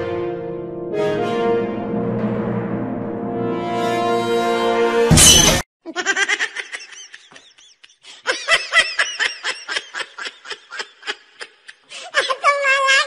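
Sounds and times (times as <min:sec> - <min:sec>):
loud crash: 0:01.6 - 0:05.6
person giggling: 0:05.9 - 0:12.4.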